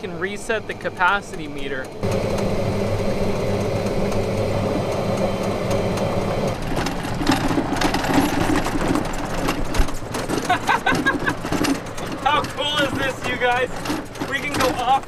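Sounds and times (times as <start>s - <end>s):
electric motor hum: 0.0s - 10.1s
tyres on gravel: 0.0s - 15.0s.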